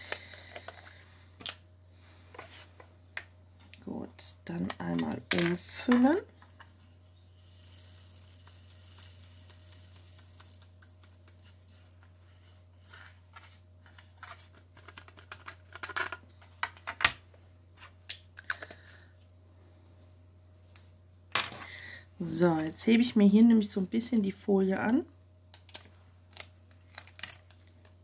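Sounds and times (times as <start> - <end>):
plastic beads pouring into a tray: 7.3 - 12.0.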